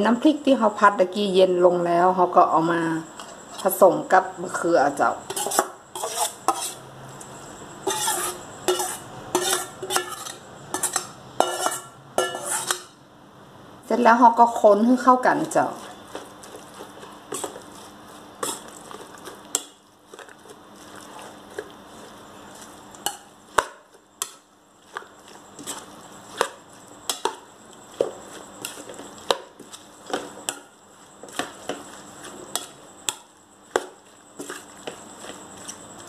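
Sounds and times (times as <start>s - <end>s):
spoon clinking against metal bowl: 7.9s - 12.9s, 23.0s - 24.4s
soft wet stirring: 15.4s - 36.0s.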